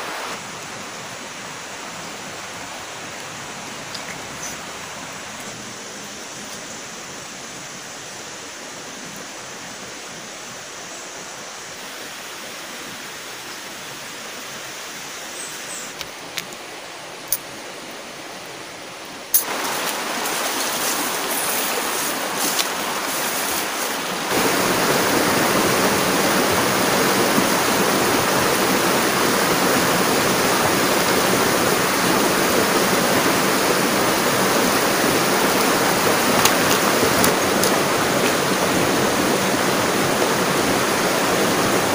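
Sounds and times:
stream rushing over stones: 0:00.0 - 0:41.9.

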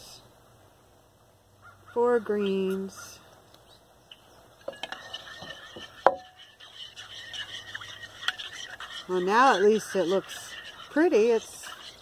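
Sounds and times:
spoon scraping in a bowl: 0:04.6 - 0:12.0.

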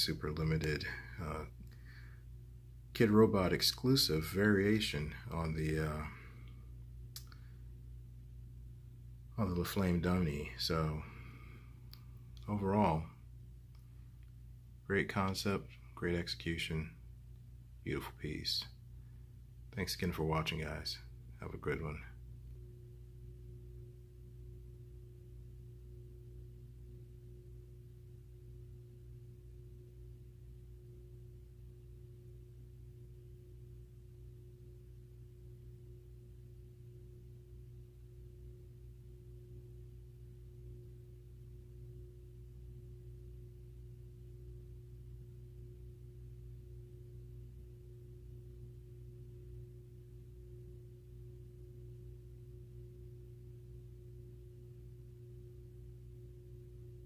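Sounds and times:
low hum with faint tone: 0:00.0 - 0:57.0.

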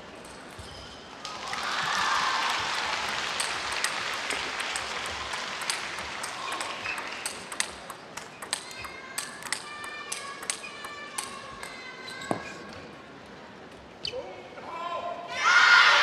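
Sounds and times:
crowd applause: 0:01.3 - 0:07.5.

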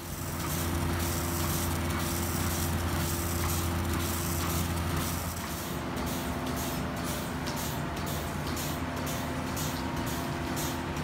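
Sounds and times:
milking machine drone: 0:00.0 - 0:11.0.

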